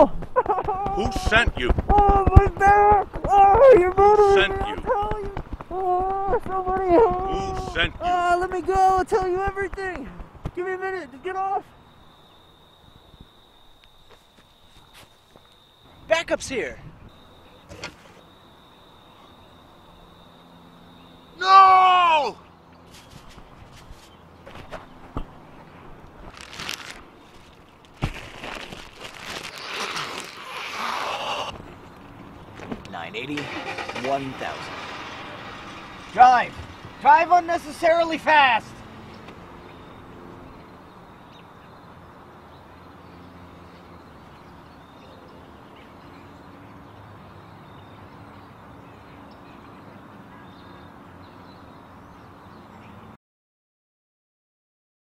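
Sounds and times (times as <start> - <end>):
plastic bag crinkling: 26.3 - 31.1.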